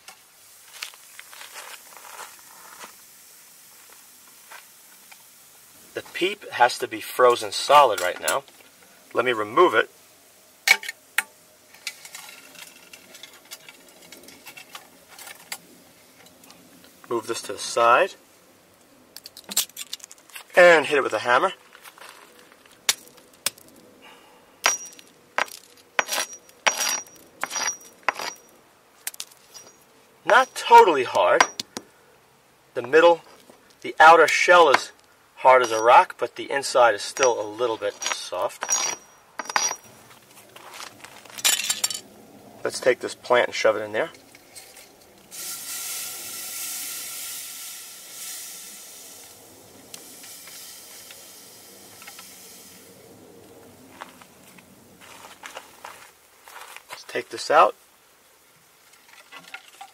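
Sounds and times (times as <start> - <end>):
liquid propane boiling and hissing: 0.0 - 19.4, 42.2 - 59.9.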